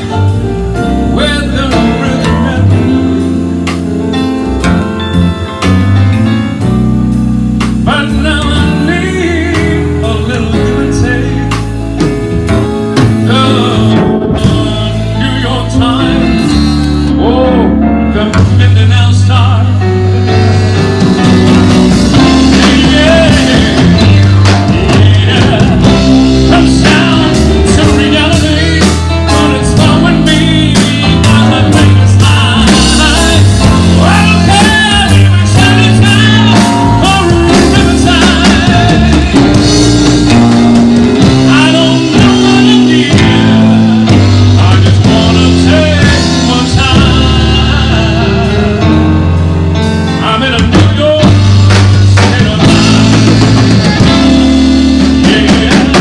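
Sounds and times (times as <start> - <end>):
live band playing a jazz ballad: 0.0 - 56.0
saxophone melody: 19.8 - 50.6, 52.4 - 56.0.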